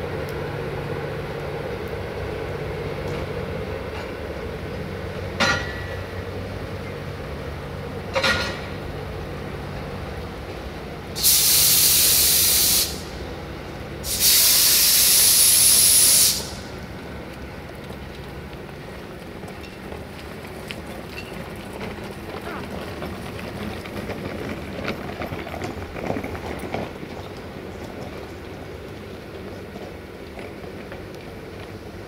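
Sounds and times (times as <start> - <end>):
compressed air hissing: 11.2 - 13.1, 14.0 - 16.7.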